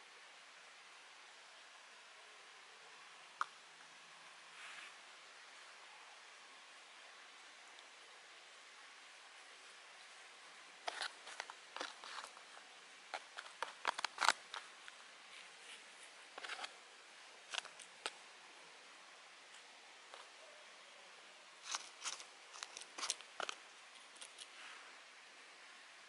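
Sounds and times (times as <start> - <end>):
faint hiss: 0.0 - 26.0
handling crackles and clicks: 13.1 - 15.0, 16.4 - 16.7, 21.6 - 24.5.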